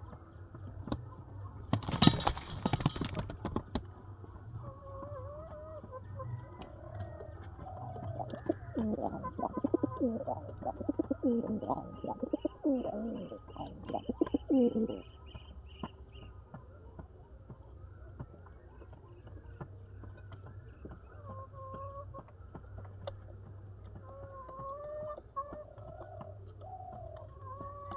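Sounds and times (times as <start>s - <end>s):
pigeons cooing: 6.6s - 15.1s
faint bird calls: 7.0s - 16.4s.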